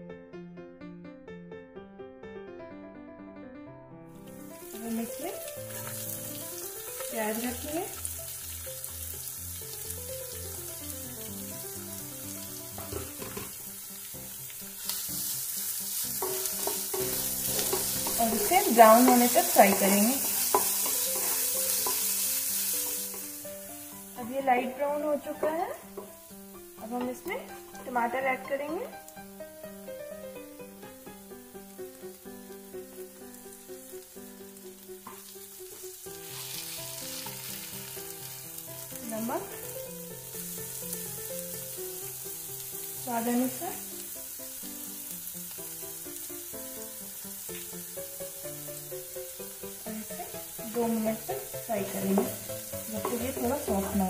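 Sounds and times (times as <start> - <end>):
simple background melody: 0.0 - 54.0
soft background music: 0.0 - 54.0
onions sizzling in frying pan: 4.2 - 54.0
wooden spatula scraping: 16.0 - 23.4
wooden spoon stirring: 16.2 - 22.2.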